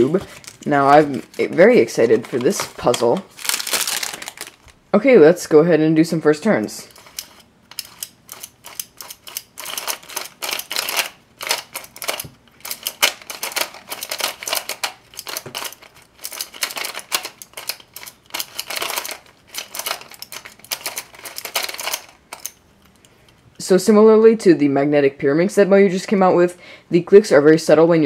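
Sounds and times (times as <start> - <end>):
plastic puzzle pieces clicking: 7.0 - 22.6.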